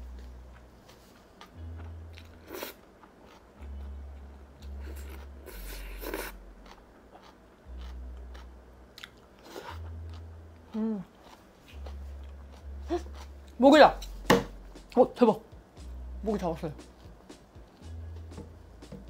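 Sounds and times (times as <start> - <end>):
person chewing crunchy food: 0.1 - 14.2.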